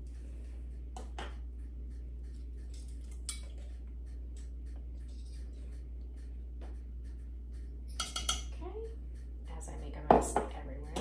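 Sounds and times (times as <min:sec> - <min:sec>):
low steady hum: 0:00.0 - 0:11.0
metal spoon clinking: 0:02.7 - 0:03.7, 0:07.9 - 0:08.5.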